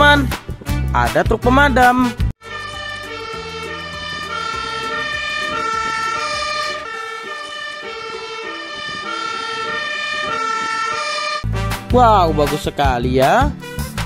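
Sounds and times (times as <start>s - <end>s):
two-tone fire engine siren: 2.4s - 11.5s
truck engine rumbling: 2.4s - 12.2s.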